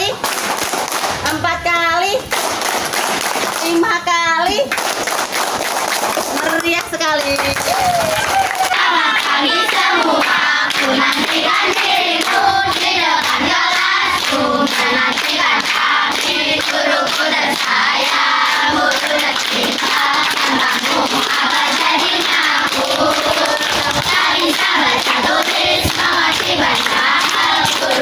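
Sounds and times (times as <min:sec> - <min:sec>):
children clapping: 0:00.0 - 0:01.4, 0:02.2 - 0:03.9, 0:04.5 - 0:28.0
children singing in chorus: 0:08.6 - 0:28.0.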